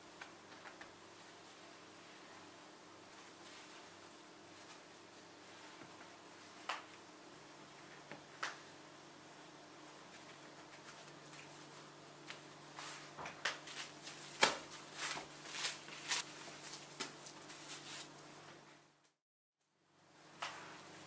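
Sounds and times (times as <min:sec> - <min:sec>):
cling film crinkling: 0:13.4 - 0:18.3.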